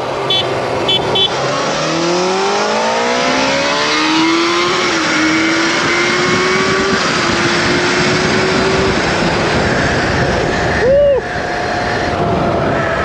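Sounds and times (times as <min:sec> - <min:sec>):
wind rush on microphone: 0:03.0 - 0:13.0.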